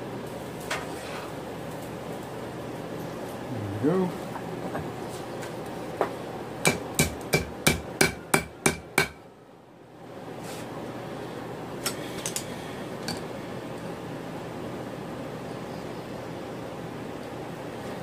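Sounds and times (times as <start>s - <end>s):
hammer striking steel on anvil: 6.6s - 9.2s.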